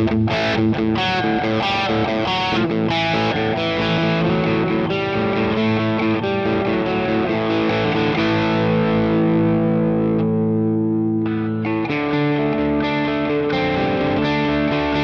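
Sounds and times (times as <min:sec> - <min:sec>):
overdriven electric guitar: 0:00.0 - 0:15.0.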